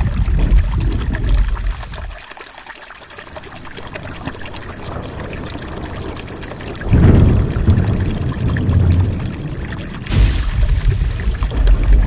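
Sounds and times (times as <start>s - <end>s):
heavy rain falling: 0.0s - 2.2s, 3.2s - 12.0s
heavy low rumble: 10.1s - 12.0s.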